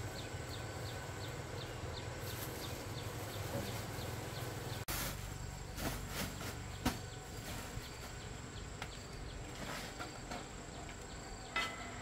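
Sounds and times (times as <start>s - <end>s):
insects droning: 0.0s - 12.0s
plastic sack rustling: 2.2s - 8.2s.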